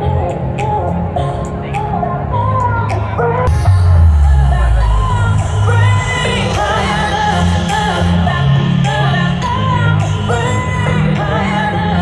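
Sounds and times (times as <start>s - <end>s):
pop song with singing: 0.0s - 12.0s
pulsing bass beat: 3.5s - 9.0s.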